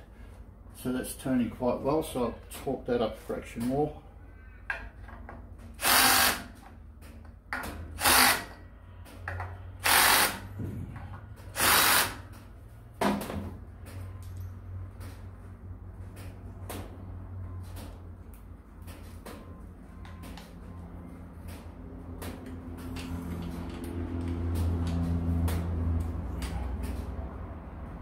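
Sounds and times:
cordless drill driving screws: 0:05.8 - 0:06.5, 0:08.0 - 0:08.5, 0:09.8 - 0:10.4, 0:11.6 - 0:12.2
drill click: 0:05.8 - 0:06.5.

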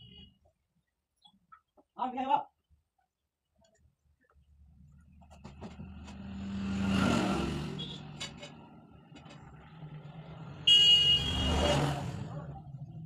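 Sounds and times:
passing vehicle: 0:05.4 - 0:13.0.

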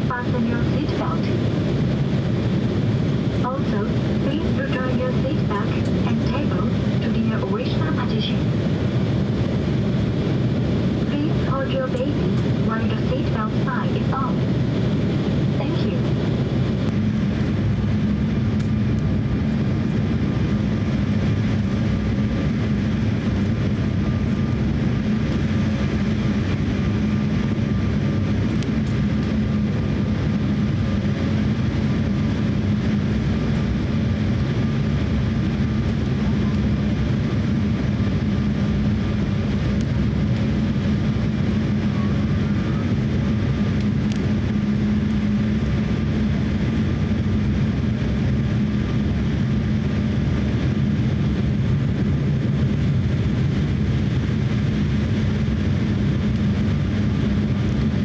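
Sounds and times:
airflow noise: 0:00.0 - 0:58.0
jet engine drone: 0:00.0 - 0:58.0.

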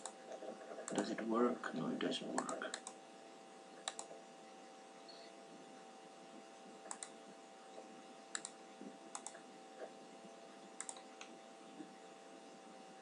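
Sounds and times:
computer mouse clicks: 0:00.0 - 0:01.1, 0:02.4 - 0:03.0, 0:03.8 - 0:04.2, 0:06.8 - 0:07.2, 0:08.3 - 0:09.9, 0:10.8 - 0:11.4
faint steady hum: 0:00.0 - 0:13.0.

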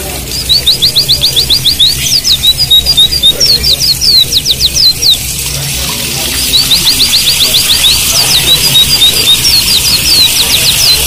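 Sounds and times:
birds singing high slurred notes: 0:00.2 - 0:11.0
rapid bird trill: 0:00.2 - 0:11.0
running water hiss: 0:03.0 - 0:11.0.

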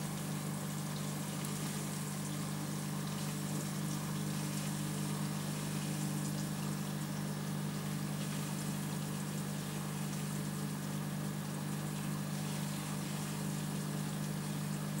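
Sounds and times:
aquarium pump humming: 0:00.0 - 0:15.0
tiny ticks of bubbles: 0:00.1 - 0:07.2.

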